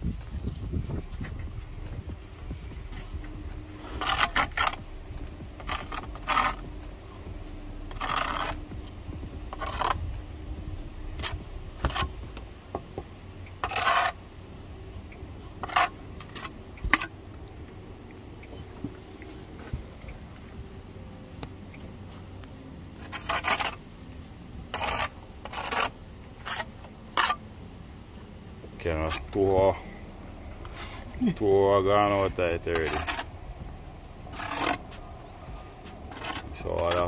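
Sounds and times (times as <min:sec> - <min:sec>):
trowel scraping bricks: 0:02.4 - 0:10.3, 0:10.9 - 0:14.3, 0:15.4 - 0:17.2, 0:22.9 - 0:23.9, 0:24.7 - 0:27.5, 0:30.6 - 0:33.3, 0:34.3 - 0:37.0.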